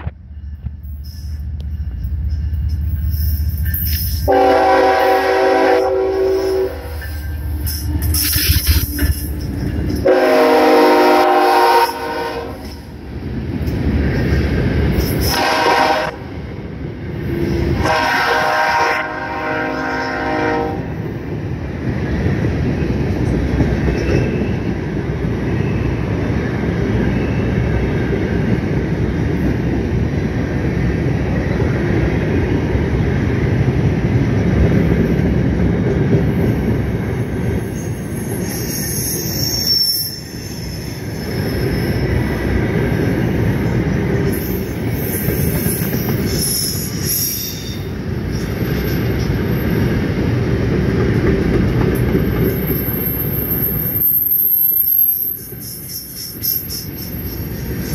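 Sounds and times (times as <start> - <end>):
freight train wheels rumbling: 0.0 - 57.9
metal wheel squeal: 37.7 - 42.1, 52.4 - 57.9.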